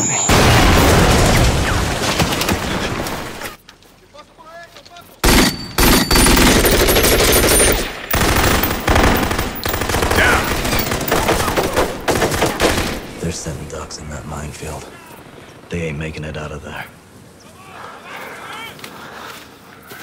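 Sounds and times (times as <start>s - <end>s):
automatic rifle fire: 5.2s - 13.1s.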